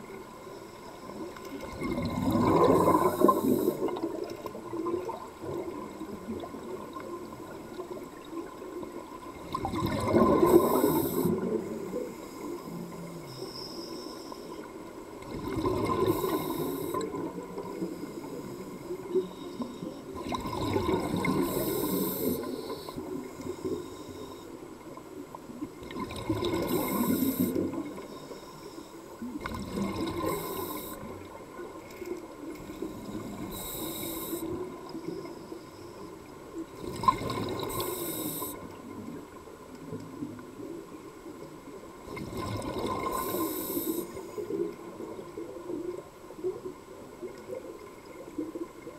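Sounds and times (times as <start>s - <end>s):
exhaled bubbles rushing: 1.5s - 7.5s, 9.3s - 12.1s, 15.2s - 17.8s, 20.1s - 22.6s, 25.8s - 28.0s, 29.3s - 31.3s, 36.8s - 37.9s, 42.1s - 43.4s.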